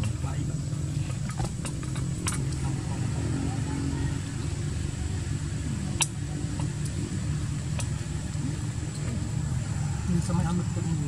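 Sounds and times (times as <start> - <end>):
engine running low rumble: 0.0 - 11.0.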